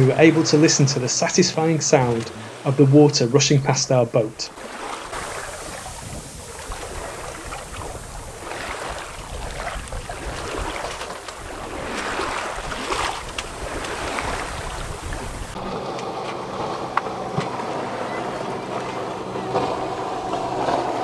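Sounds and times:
water rushing along hull: 0.0 - 21.0
wind on microphone: 5.1 - 21.0
low hum: 15.1 - 21.0.

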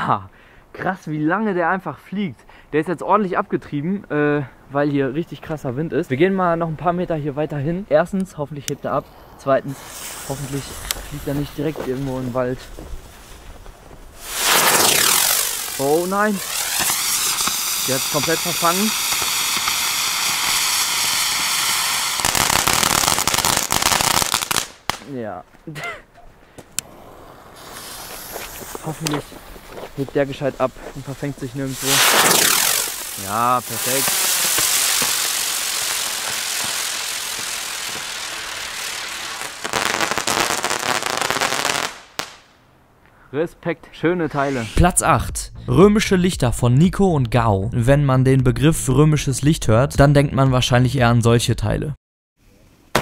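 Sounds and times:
firework hissing: 9.1 - 13.5, 14.1 - 25.0, 26.8 - 42.5, 44.4 - 44.9
firework crackling: 9.1 - 25.3, 26.8 - 42.6
single firework crack: 14.2 - 25.1, 26.8 - 30.0, 31.7 - 42.6.

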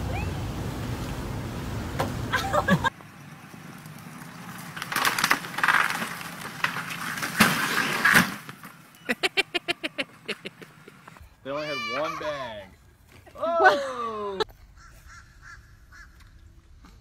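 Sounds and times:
timber cracking and crashing: 4.1 - 8.8.

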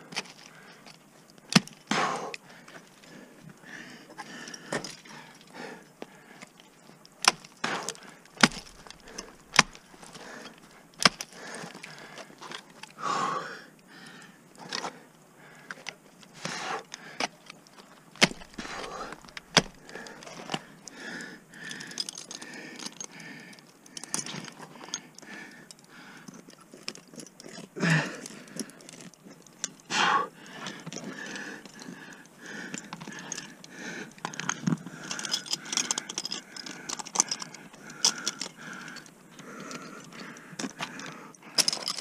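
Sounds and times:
ice axes striking ice: 1.5 - 2.4, 7.2 - 12.6, 18.1 - 20.7
metal climbing hardware clinking: 6.4 - 13.0, 16.8 - 42.0.

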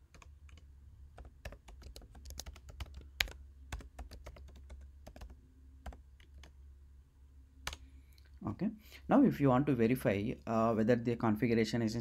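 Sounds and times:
computer keyboard typing: 0.1 - 6.6.

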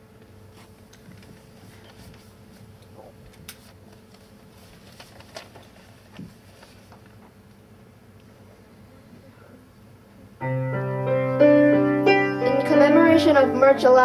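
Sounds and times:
small clicks and rustles: 0.6 - 7.6.

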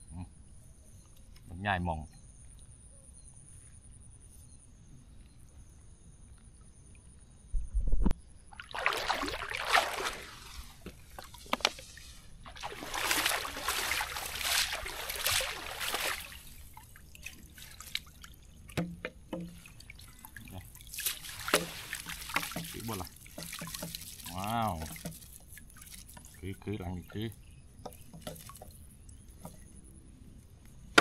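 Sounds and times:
dripping splashes: 8.5 - 29.8
water splashing off a trap: 8.6 - 11.8, 12.5 - 26.4.

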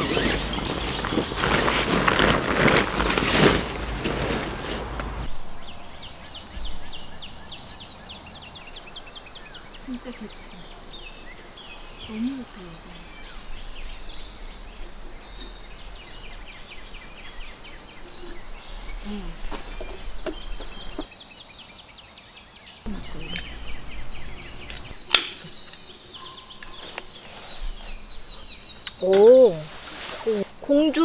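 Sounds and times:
birds chirping: 0.0 - 31.0
high insect drone: 0.0 - 31.0.

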